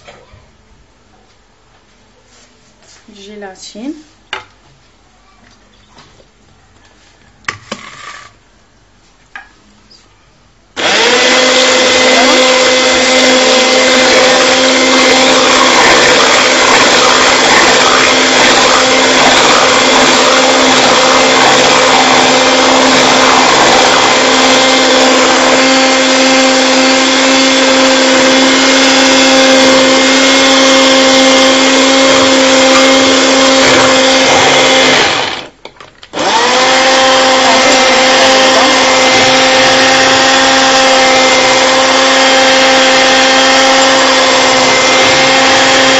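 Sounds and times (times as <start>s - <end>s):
electric hand mixer whipping cream: 10.8s - 35.5s, 36.2s - 45.9s.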